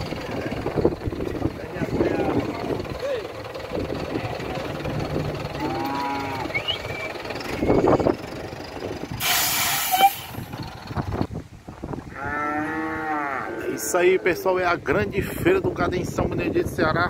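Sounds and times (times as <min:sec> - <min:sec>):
cow mooing: 0:04.8 - 0:06.7, 0:12.1 - 0:14.4
air brakes hissing: 0:09.2 - 0:10.5.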